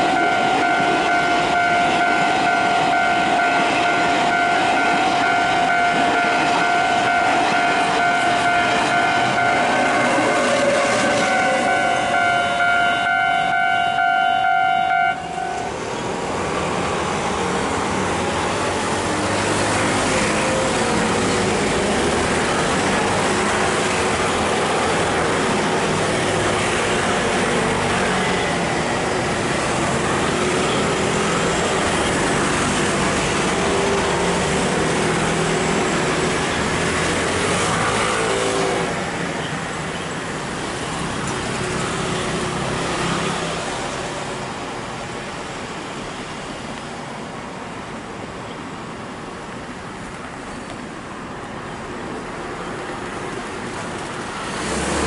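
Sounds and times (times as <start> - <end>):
train horn chord: 0.0 - 15.7
rumble of passing vehicles: 0.0 - 55.0.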